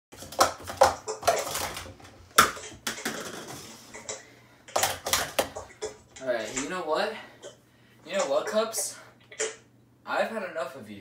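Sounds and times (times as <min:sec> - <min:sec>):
plastic cups clacking: 0:00.1 - 0:06.8.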